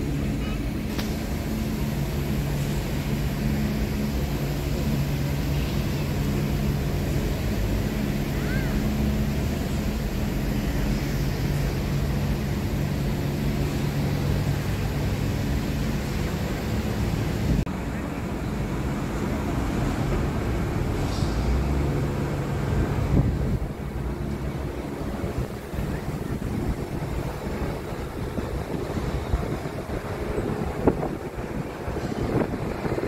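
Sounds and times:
low droning city hum: 0.0 - 33.0.

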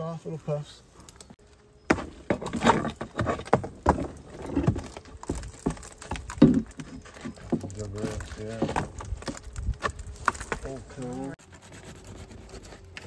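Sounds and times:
wood creaking: 1.9 - 11.4
metal scraping on wood: 1.9 - 13.0.

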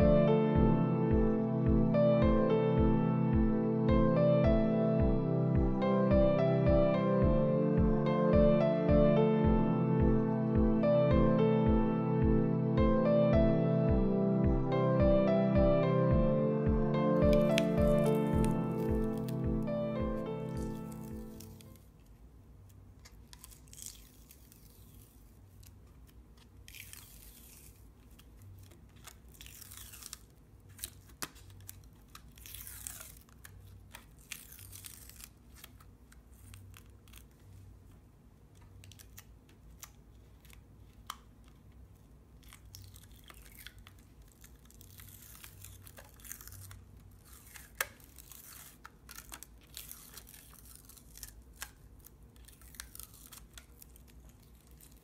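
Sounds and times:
masking fluid peeling off paper: 17.3 - 19.4, 22.7 - 37.9, 38.5 - 55.0.

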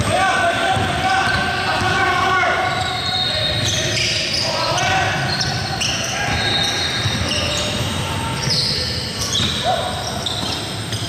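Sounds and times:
sneakers squeaking on court: 0.7 - 11.0
basketball bouncing: 7.0 - 8.4.

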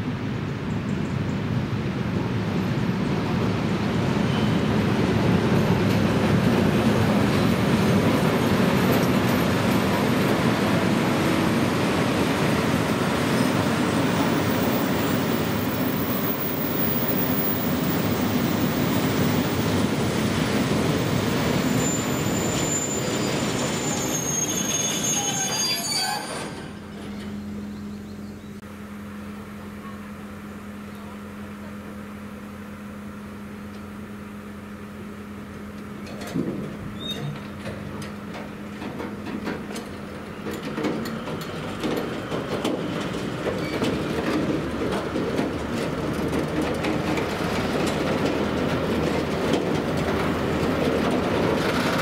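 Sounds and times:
diesel locomotive engine hum: 0.0 - 52.0
train wheels rumbling on rail: 0.1 - 28.6, 29.8 - 52.0
high-pitched wheel squeal: 21.6 - 27.4, 37.0 - 37.4.

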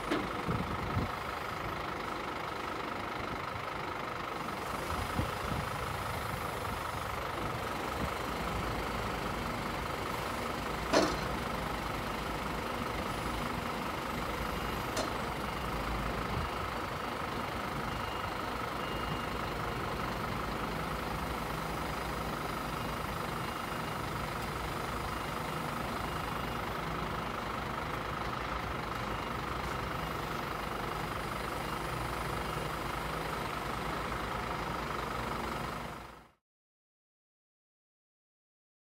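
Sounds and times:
truck diesel engine running: 0.0 - 36.4.

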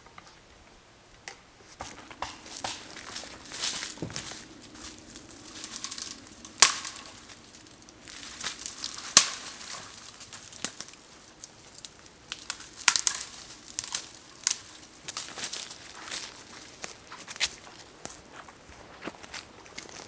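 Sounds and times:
branches rustling: 0.0 - 20.0
dry twigs snapping: 1.8 - 18.2.

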